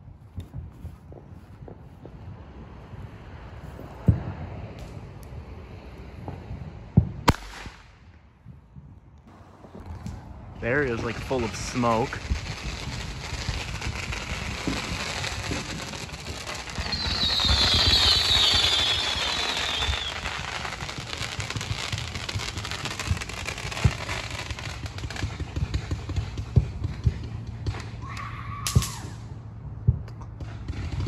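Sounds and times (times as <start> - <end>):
fireworks crackling and popping: 0.0 - 31.0
loud firework bangs: 6.2 - 31.0
firework hissing rush: 9.3 - 27.2.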